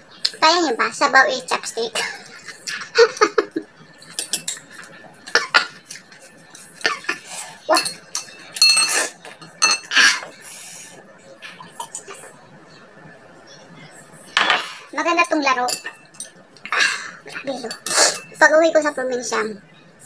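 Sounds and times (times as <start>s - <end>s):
chopsticks clinking on ceramic bowl: 7.7s - 9.9s, 15.7s - 16.4s.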